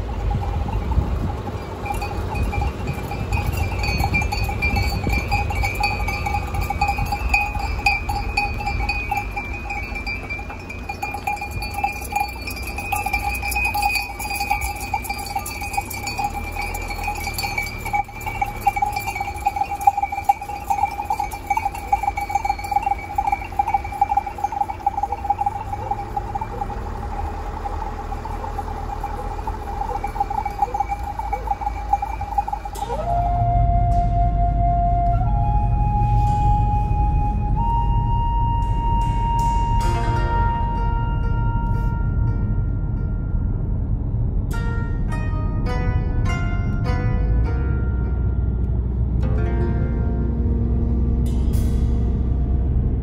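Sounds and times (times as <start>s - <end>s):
sheep bells jangling: 0.0s - 33.0s
low rumble: 0.0s - 53.0s.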